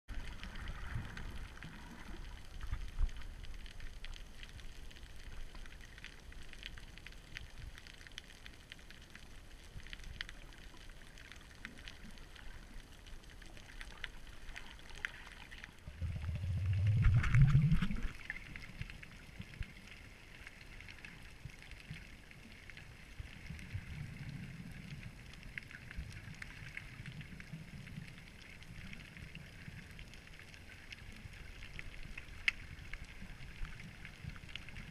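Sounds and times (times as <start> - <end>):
faint crackling: 0.1 - 34.9
underwater low rumble: 0.1 - 34.9
water surge with rising hum: 15.8 - 18.5.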